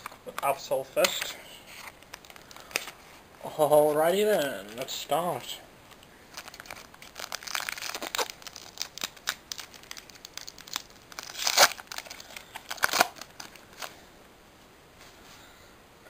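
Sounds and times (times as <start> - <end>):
foil card pack crinkling: 0.0 - 3.0, 5.9 - 14.0.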